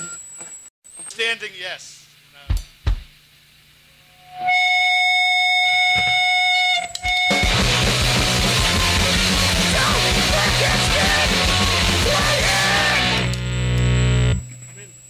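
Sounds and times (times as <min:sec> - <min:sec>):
punk rock band playing: 0:07.2 - 0:14.4
person yelling vocals: 0:09.6 - 0:13.2.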